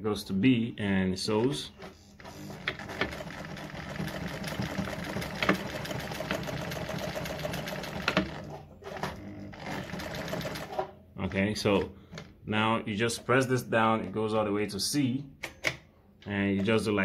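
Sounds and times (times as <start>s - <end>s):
sewing machine stitching: 1.7s - 11.0s.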